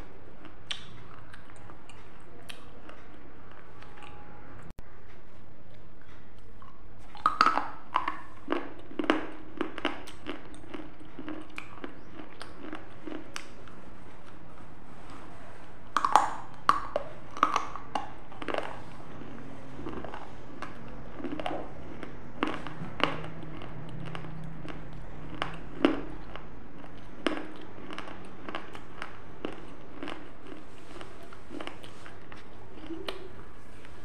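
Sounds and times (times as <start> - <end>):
food crunching while chewed: 0.0 - 4.2, 5.6 - 34.0.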